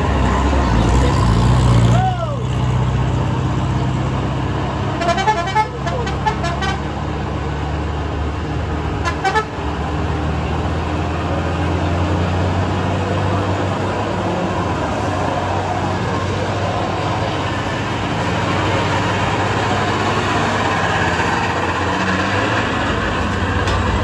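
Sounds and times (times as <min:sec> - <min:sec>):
diesel truck engine droning: 0:00.0 - 0:24.0
truck horn toots: 0:05.0 - 0:07.0, 0:09.0 - 0:09.6.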